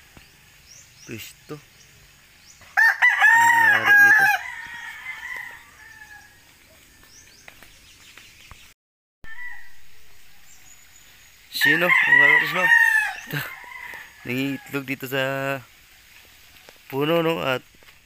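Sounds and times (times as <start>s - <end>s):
rooster crowing: 2.7s - 7.1s, 9.2s - 10.8s, 11.6s - 14.9s.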